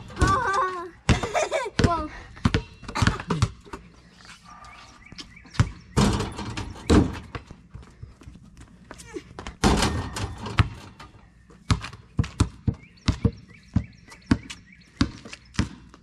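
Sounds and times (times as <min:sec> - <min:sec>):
basketball bouncing on asphalt: 0:00.0 - 0:03.9, 0:05.2 - 0:16.0
ball hitting backboard and rim: 0:05.5 - 0:07.5, 0:09.6 - 0:11.1.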